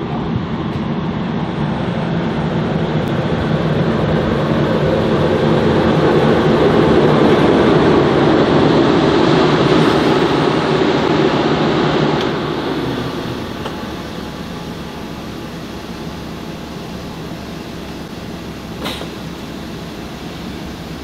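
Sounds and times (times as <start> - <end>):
diesel train engine hum: 0.0 - 21.0.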